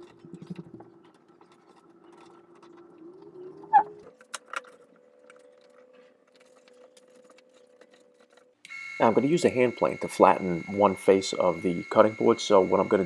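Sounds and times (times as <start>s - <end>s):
squeaky clank: 3.7s - 4.0s.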